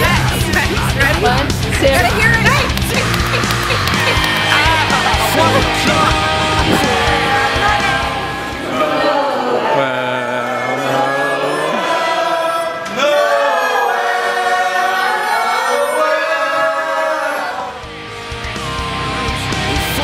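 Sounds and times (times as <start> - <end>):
voices singing a carol: 3.6 - 17.8.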